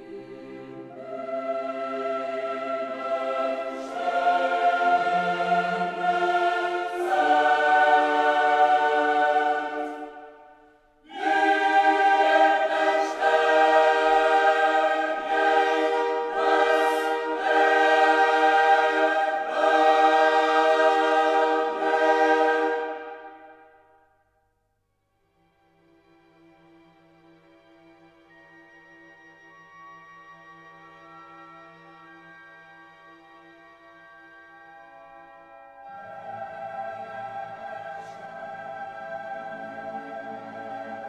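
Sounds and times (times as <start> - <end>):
choir singing held chords: 0.0 - 24.1, 35.4 - 41.0.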